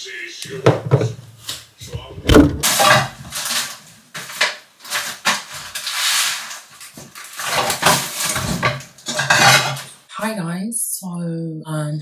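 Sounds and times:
objects knocking and clattering: 0:01.8 - 0:05.8, 0:06.8 - 0:09.9.

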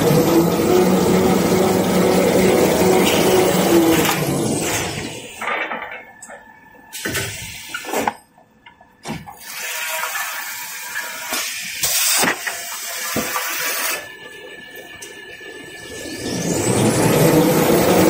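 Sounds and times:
paper rewinding machine running: 0:00.0 - 0:04.5.

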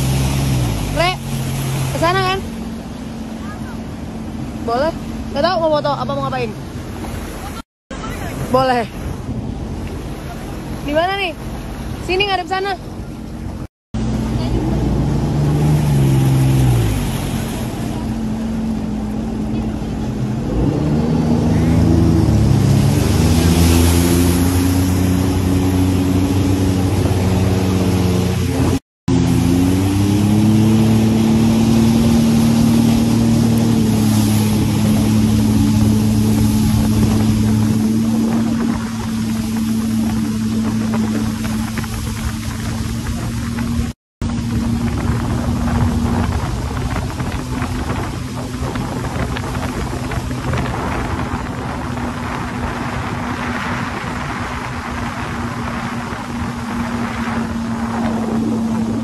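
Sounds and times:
jet ski engine running: 0:00.0 - 0:59.0
water rushing: 0:00.0 - 0:59.0
wind noise: 0:20.1 - 0:59.0.

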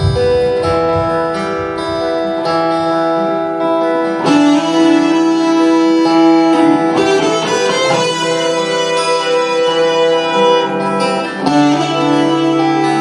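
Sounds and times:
acoustic guitar accompaniment: 0:00.0 - 0:13.0
electric guitar lead melody: 0:00.0 - 0:13.0.

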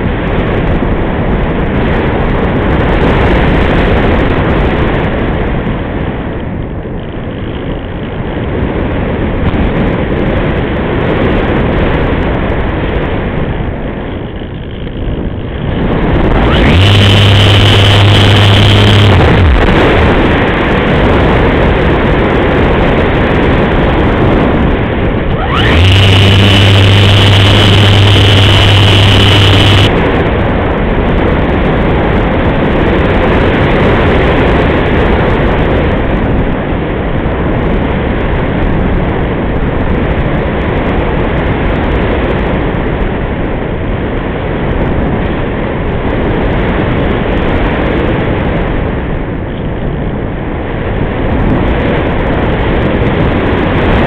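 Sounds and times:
electric motor and propeller whine: 0:13.2 - 0:21.2, 0:23.6 - 0:30.4
rushing airflow: 0:15.3 - 0:21.8, 0:23.1 - 0:30.6.

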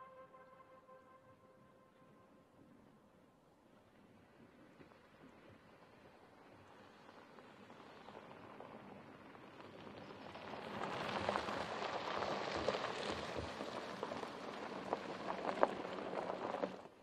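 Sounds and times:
tyres crunching over gravel: 0:06.9 - 0:17.0.

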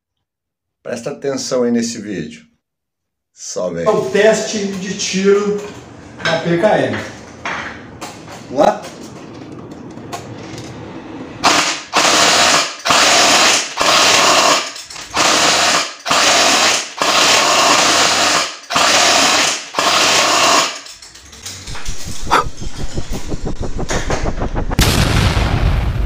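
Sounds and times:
airsoft machine gun bursts: 0:11.4 - 0:21.0.

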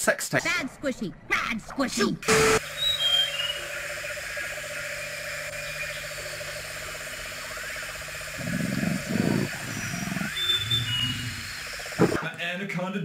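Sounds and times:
pulsing insect buzz: 0:02.4 - 0:12.2
high bird chirps: 0:02.6 - 0:04.2, 0:05.0 - 0:12.0
low animal growls: 0:08.4 - 0:11.4.

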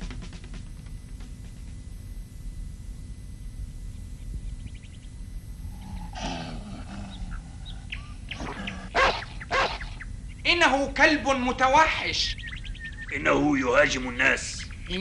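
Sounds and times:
cartoon dog growling: 0:05.7 - 0:09.9.

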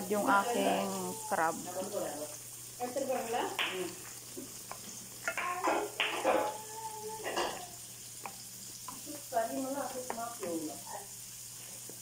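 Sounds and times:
sauce sizzling: 0:00.0 - 0:12.0
spoon squeaking on pan: 0:05.2 - 0:07.9.

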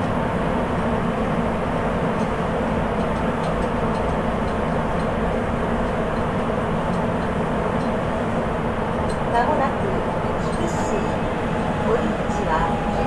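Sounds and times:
subway train running in tunnel: 0:00.0 - 0:13.0.

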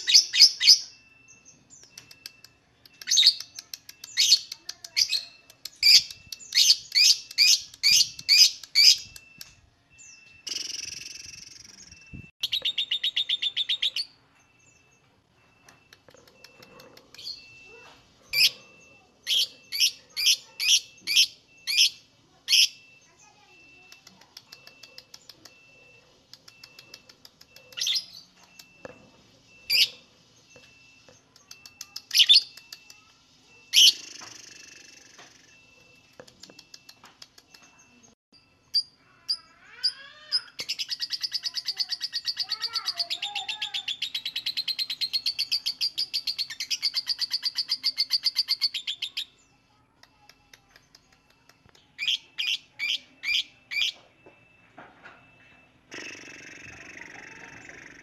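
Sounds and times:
bird chattering trill: 0:01.8 - 0:09.4, 0:10.4 - 0:14.2, 0:15.7 - 0:28.8, 0:29.6 - 0:38.0, 0:38.7 - 0:49.4, 0:50.1 - 0:54.0, 0:55.9 - 0:58.0.

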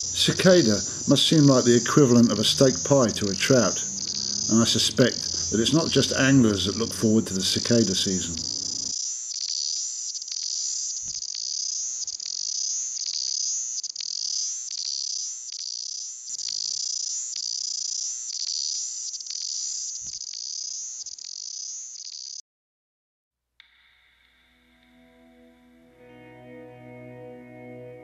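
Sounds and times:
cicadas buzzing: 0:00.0 - 0:22.4.

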